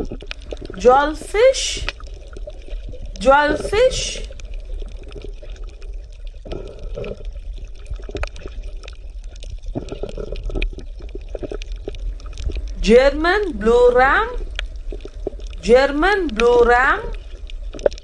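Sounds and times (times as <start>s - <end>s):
water bubbling and gurgling: 0.0s - 18.0s.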